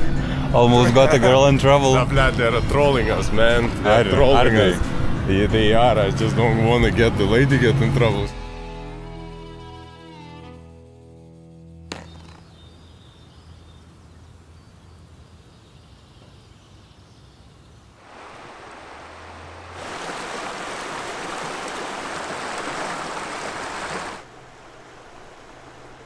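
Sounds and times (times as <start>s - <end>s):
river rushing over rocks: 18.0s - 26.0s.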